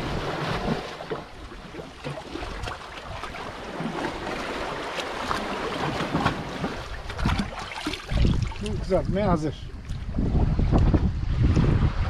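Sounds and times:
sea water lapping at shore: 0.0 - 12.0
wind on microphone: 5.2 - 12.0.

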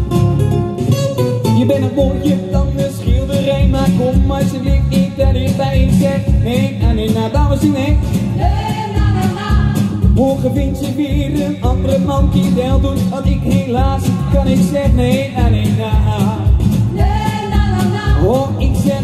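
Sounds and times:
song over a sound system: 0.0 - 19.0
man singing into a microphone: 1.5 - 8.5, 10.0 - 16.6, 18.0 - 19.0.

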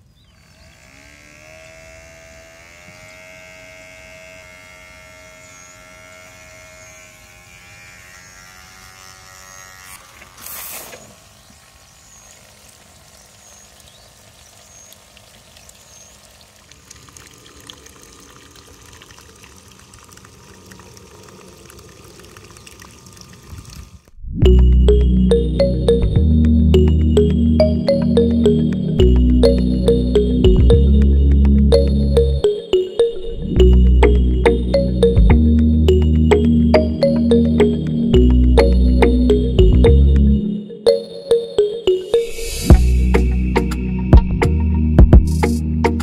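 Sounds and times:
small electric motor whirring: 0.0 - 14.0, 20.8 - 24.2
water pouring and splashing: 10.2 - 24.1.

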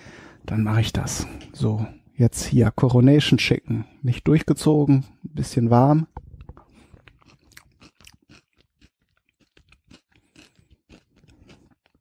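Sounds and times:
person chewing food: 6.1 - 12.0.

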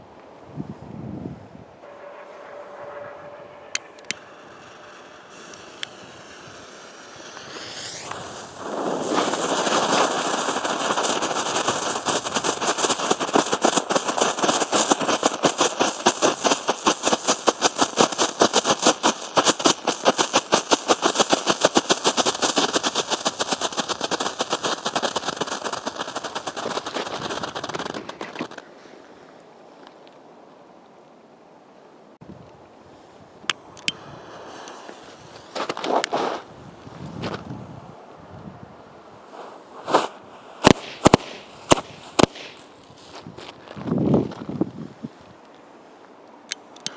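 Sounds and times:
fuse sputtering: 1.8 - 28.6
firework crackling pops: 2.0 - 28.7, 33.5 - 36.5, 39.3 - 44.8.

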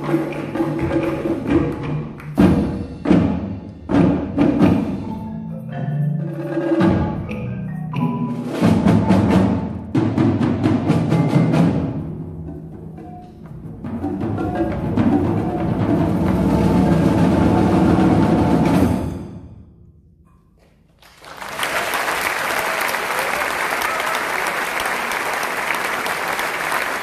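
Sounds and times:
marimba and mallet instruments: 0.0 - 3.2, 3.9 - 18.9
drums: 0.0 - 20.4.

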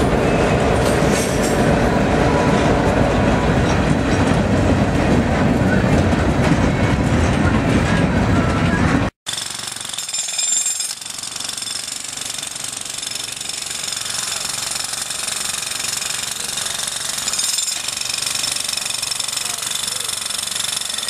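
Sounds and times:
construction machinery clattering: 9.3 - 21.0.

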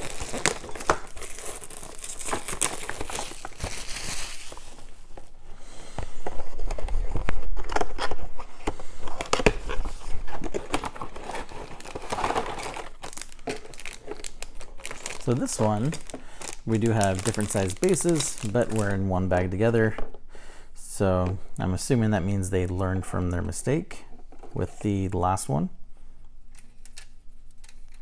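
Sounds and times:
plastic packaging crinkling: 0.0 - 5.4, 6.3 - 19.2.

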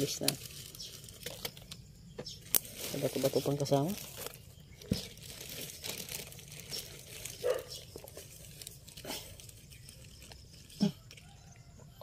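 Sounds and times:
plastic sheeting rustling: 2.6 - 9.7
dog barking: 7.4 - 7.8.

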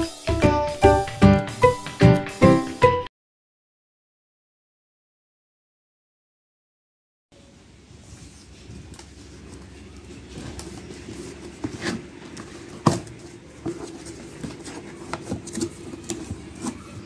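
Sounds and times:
cardboard knocks and rustles: 10.3 - 16.8.

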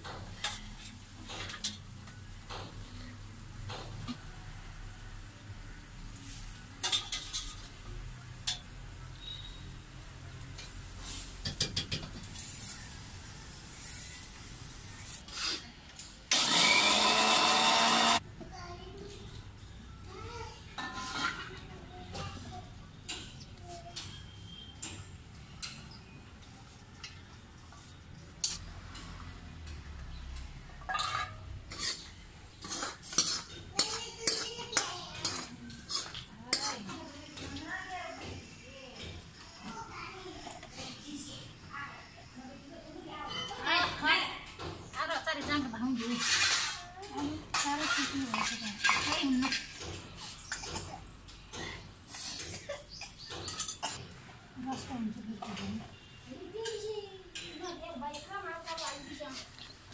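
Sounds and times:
metal spatula scraping a wok: 0.2 - 1.9, 6.3 - 9.8, 20.8 - 21.7, 30.9 - 37.4, 46.0 - 46.9, 47.5 - 50.7
electric mixer grinder running: 16.3 - 18.2.

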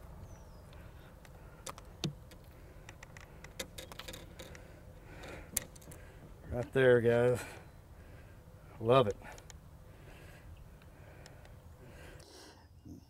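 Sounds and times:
light clicks and taps: 0.7 - 4.6.

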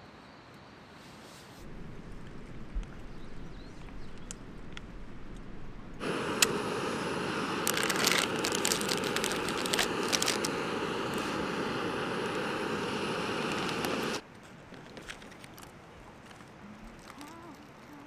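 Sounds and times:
steady rushing hiss: 0.8 - 18.0
small crackling clicks: 3.7 - 5.5, 7.6 - 11.3, 13.5 - 18.0.

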